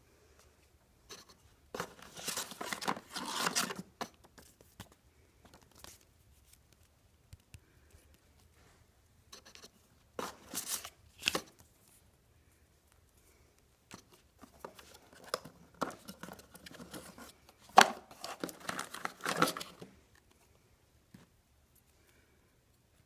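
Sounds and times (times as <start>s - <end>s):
paper and cardboard rustling: 1.1s - 6.6s, 9.4s - 12.0s, 13.9s - 20.0s.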